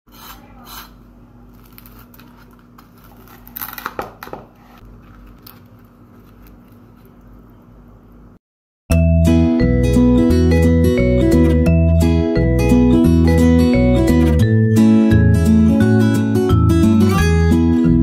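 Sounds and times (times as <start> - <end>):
knife cutting crisp wrapper: 1.5 - 7.5.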